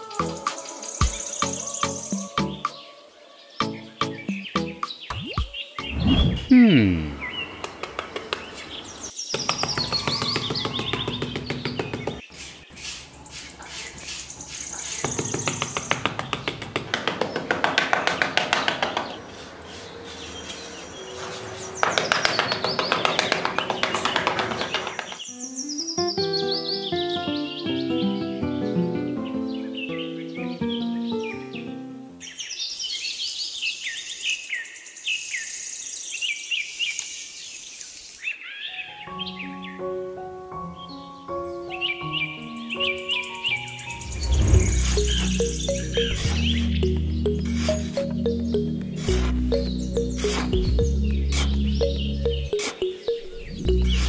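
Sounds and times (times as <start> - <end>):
birds chirping: 0.0 - 28.2, 29.0 - 40.1, 40.7 - 54.0
light hiss: 32.7 - 38.4
music track: 39.5 - 54.0.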